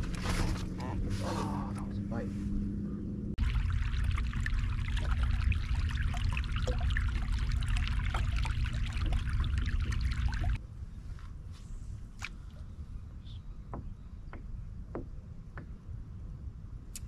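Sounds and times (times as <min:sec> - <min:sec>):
low rumble: 0:00.0 - 0:11.0
faint hum: 0:00.0 - 0:17.0
water lapping: 0:03.4 - 0:10.6
water splashing against kayak hull: 0:03.4 - 0:10.6.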